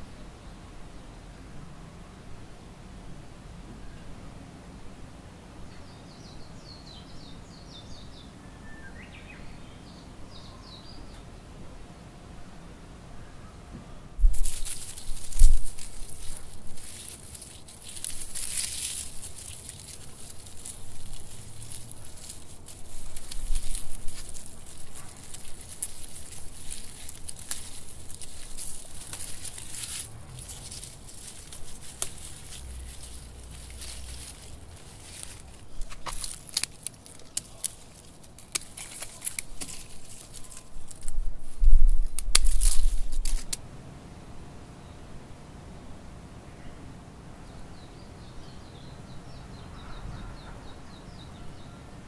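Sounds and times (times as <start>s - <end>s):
dry flower heads crackling: 14.2s - 43.6s
leaves rustling: 14.2s - 44.7s.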